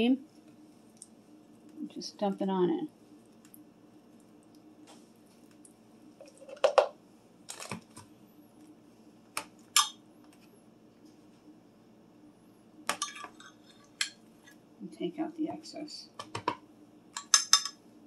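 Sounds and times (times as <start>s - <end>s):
metal spoon clinking on glass: 17.2s - 17.8s.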